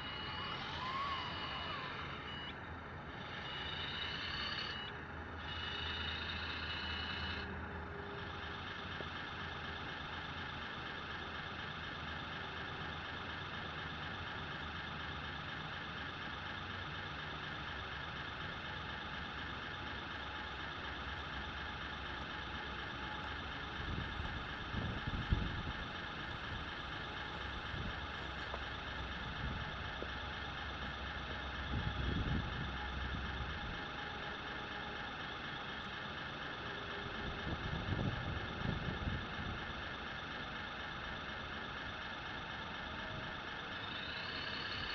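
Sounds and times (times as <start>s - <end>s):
diesel idle from small speaker: 0.0s - 44.9s
low rumbles: 20.4s - 33.8s.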